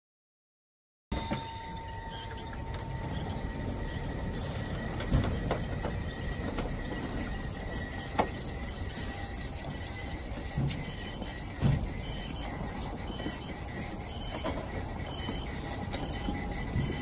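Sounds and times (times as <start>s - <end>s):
faint high squeal: 1.2s - 17.0s
trolley car rumbling on rails: 1.2s - 17.0s
clunk: 5.0s - 8.6s, 10.5s - 12.4s.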